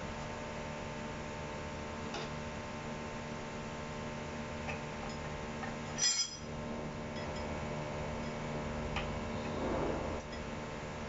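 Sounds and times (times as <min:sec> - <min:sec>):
steady low hum: 0:00.0 - 0:11.0
metal plates clinking: 0:06.0 - 0:06.4.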